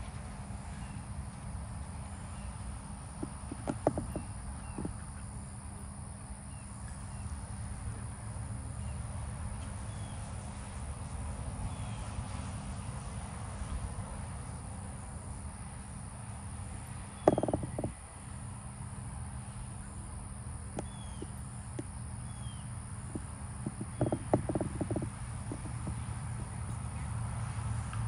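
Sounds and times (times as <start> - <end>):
wind rumble on microphone: 17.2 - 18.1, 23.1 - 26.6.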